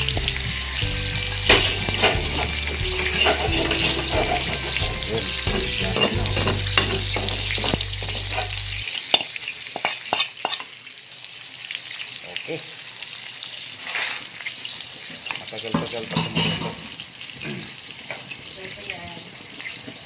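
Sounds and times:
pork sizzling in hot oil: 0:00.0 - 0:20.0
metal spatula scraping pan: 0:01.0 - 0:10.7.

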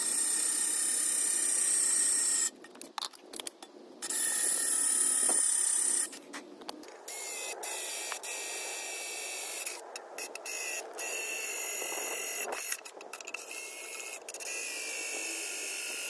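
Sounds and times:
cordless drill whining: 0:04.0 - 0:06.2, 0:07.1 - 0:16.0.

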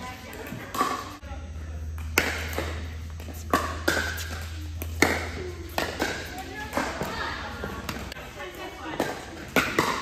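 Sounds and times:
paddles striking pickleball: 0:02.0 - 0:08.2, 0:08.9 - 0:10.0.

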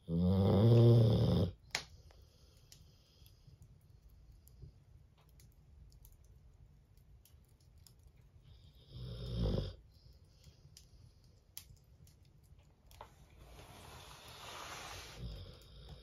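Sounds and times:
dog snoring: 0:00.0 - 0:01.6, 0:08.9 - 0:09.8.

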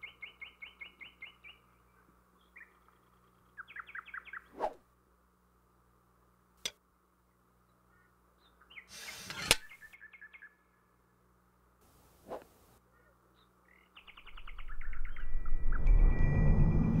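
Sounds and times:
small bird chirps: 0:00.0 - 0:04.7, 0:07.7 - 0:10.7, 0:12.9 - 0:15.9.

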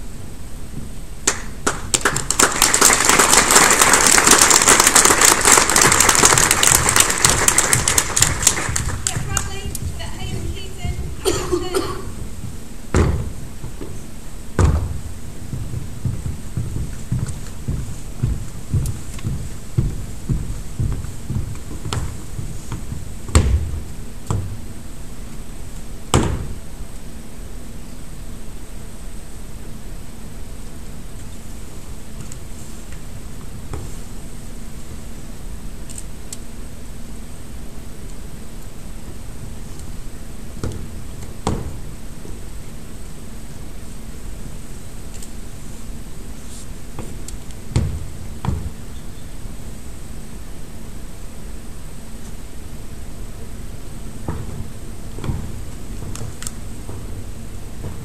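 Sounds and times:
audience clapping: 0:01.2 - 0:10.6
boots stamping on wooden floor: 0:05.8 - 0:24.8, 0:39.1 - 0:42.5, 0:46.8 - 0:49.4, 0:52.9 - 0:58.0.

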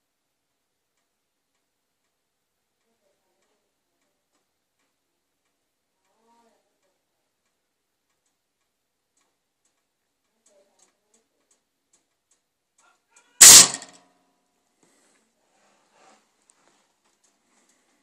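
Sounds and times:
toaster popping up with metallic snap: 0:13.4 - 0:14.0.

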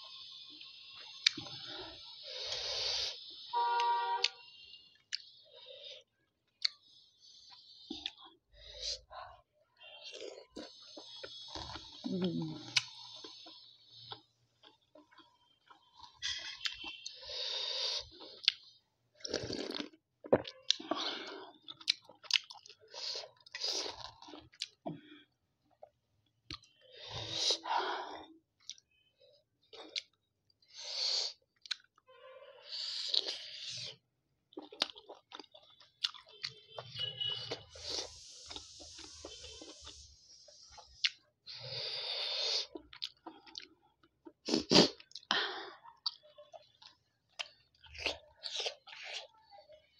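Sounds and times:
close chewing: 0:34.5 - 0:36.6.

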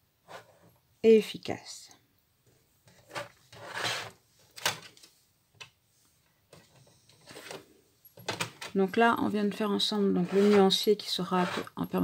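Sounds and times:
plastic box rubbing and scraping: 0:02.9 - 0:04.2, 0:10.1 - 0:11.8.

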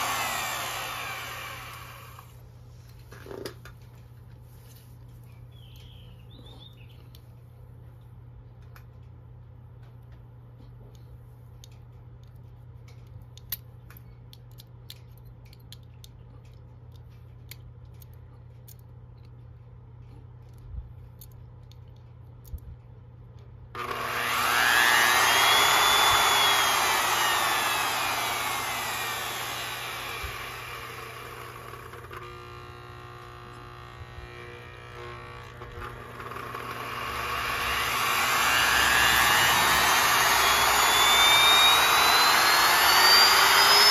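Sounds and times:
trim screw ticking: 0:00.0 - 0:02.2, 0:23.8 - 0:32.3, 0:35.7 - 0:43.9
router motor whining: 0:00.0 - 0:02.4, 0:23.8 - 0:43.9.

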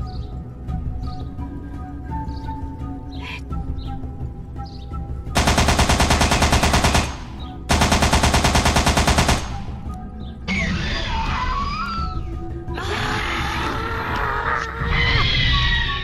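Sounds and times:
rapid automatic gunfire: 0:05.4 - 0:09.7
dinosaur screeching roar: 0:12.8 - 0:16.0.

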